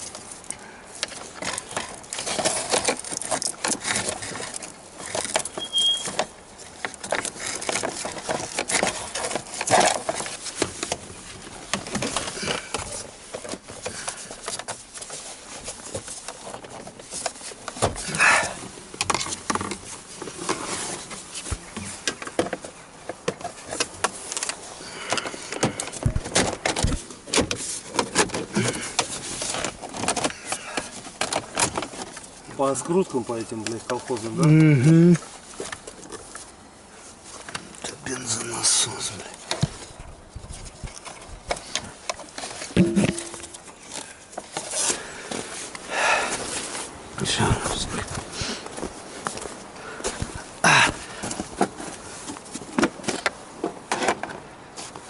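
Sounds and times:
short high squeak: 0:05.6 - 0:06.2.

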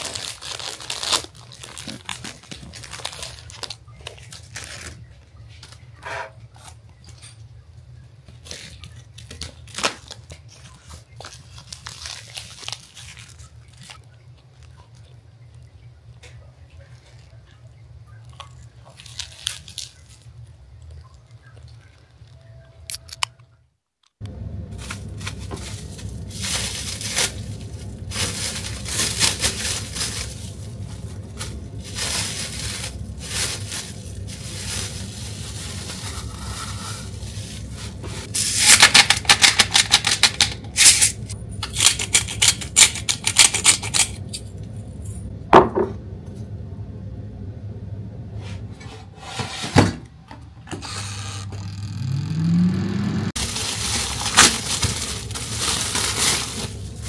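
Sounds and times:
plastic film crinkling: 0:00.0 - 0:07.0, 0:08.3 - 0:15.8, 0:18.2 - 0:23.2, 0:24.7 - 0:44.3, 0:53.3 - 0:57.0
low steady hum: 0:00.0 - 0:57.0
air fryer hum: 0:24.2 - 0:57.0.

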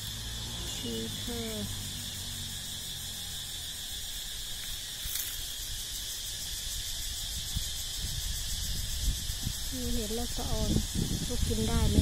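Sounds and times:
high-pitched insect chorus: 0:00.0 - 0:12.0
low rumble on microphone: 0:07.0 - 0:12.0.

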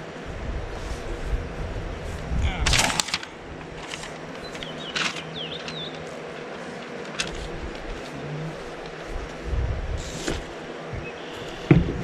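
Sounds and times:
outdoor background hiss: 0:00.0 - 0:12.0
packaging rustling and clicking: 0:02.7 - 0:08.1
bird chirping: 0:04.4 - 0:06.1, 0:11.0 - 0:11.7.

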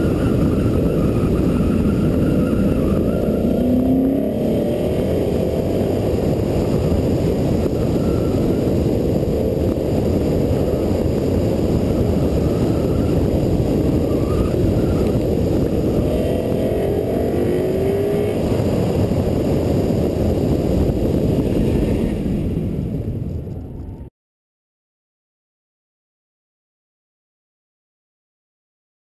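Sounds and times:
wind rumble on microphone: 0:00.0 - 0:24.1
car engine revving hard: 0:00.3 - 0:20.8.

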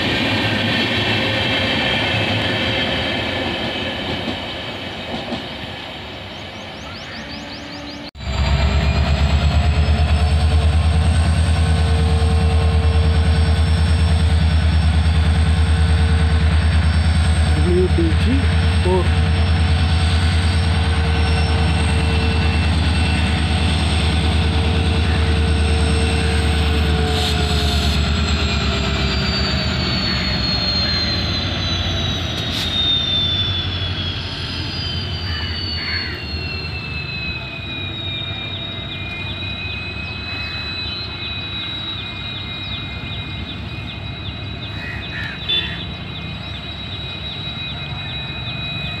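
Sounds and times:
locomotive engine deep rumble: 0:08.0 - 0:35.1.

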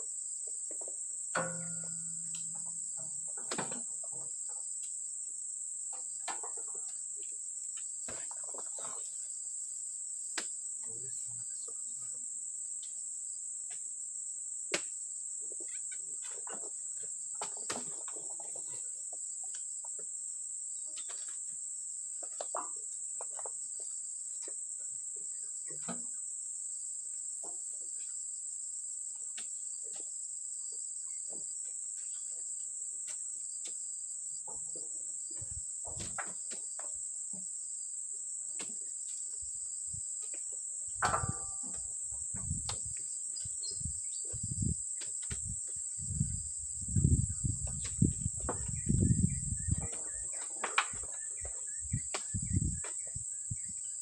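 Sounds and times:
fruit bunches thudding onto truck: 0:41.0 - 0:42.8.

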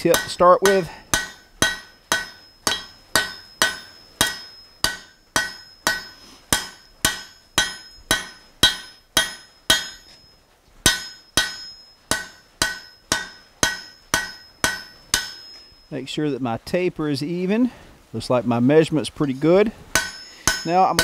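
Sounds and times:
hammer striking steel on anvil: 0:00.0 - 0:16.0, 0:19.2 - 0:21.0.

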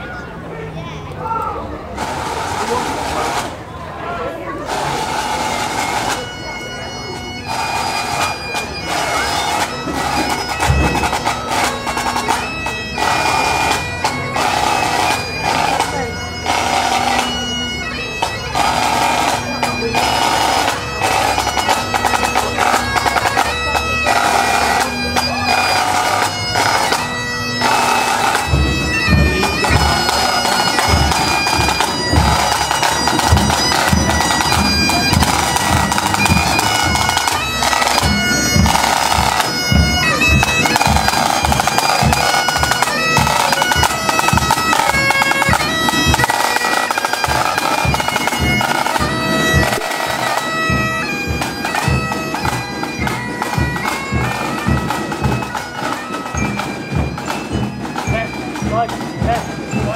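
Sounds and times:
bagpipes playing a tune: 0:02.0 - 0:03.5, 0:04.4 - 0:59.9
drum beats: 0:09.8 - 0:13.8, 0:18.2 - 0:59.9.

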